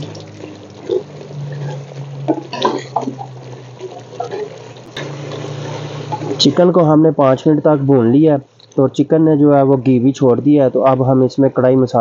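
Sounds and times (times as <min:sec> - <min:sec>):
chicken sizzling in oil: 0:00.0 - 0:06.6
crackles: 0:00.0 - 0:06.6.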